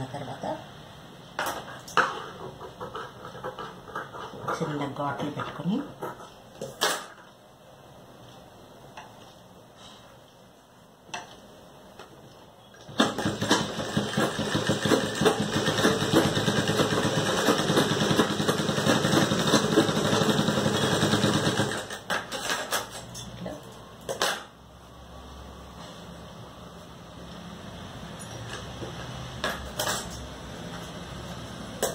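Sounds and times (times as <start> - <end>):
sewing machine stitching: 12.9 - 22.7.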